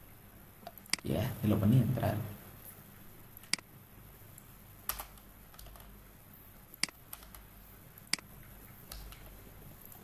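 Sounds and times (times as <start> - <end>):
keyboard keystrokes: 4.9 - 5.9, 8.9 - 9.4.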